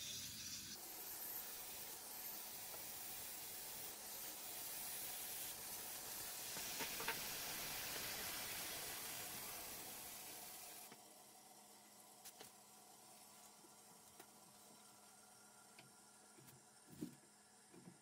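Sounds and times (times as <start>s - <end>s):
water hissing through a valve: 0.0s - 11.0s.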